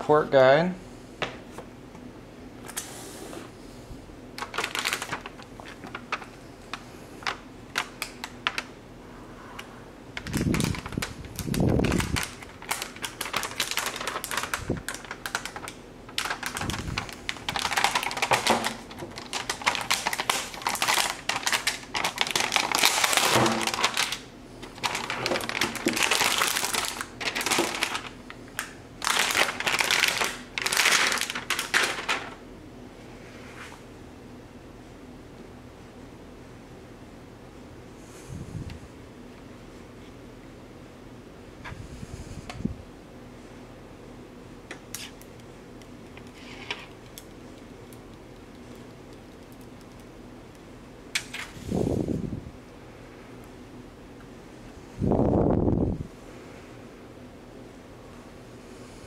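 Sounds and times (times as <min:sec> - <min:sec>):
plastic film crinkling: 0:04.4 - 0:08.7, 0:10.1 - 0:32.4, 0:46.2 - 0:50.1.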